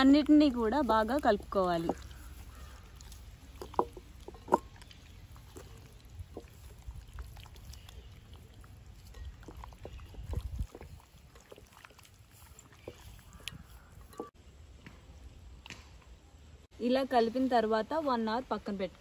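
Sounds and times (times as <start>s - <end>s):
wet squelching of raw chicken: 0.6s - 14.3s.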